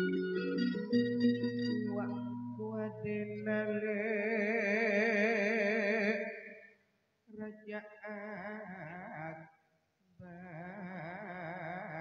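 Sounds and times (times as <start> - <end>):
man singing with vibrato: 1.6 - 6.7, 7.4 - 9.5, 10.2 - 12.0.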